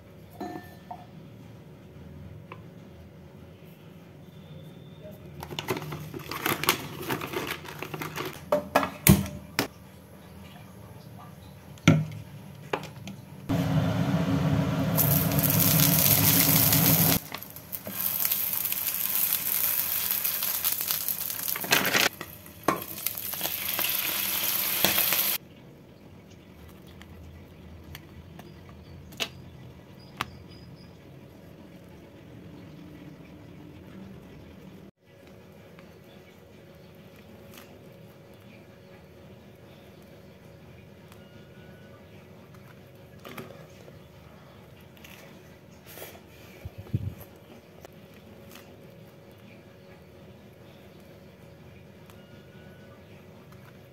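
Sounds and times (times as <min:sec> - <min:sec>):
plastic packet crinkling: 0:05.6 - 0:08.4, 0:15.0 - 0:22.2
buns sizzling in hot oil: 0:13.6 - 0:25.4.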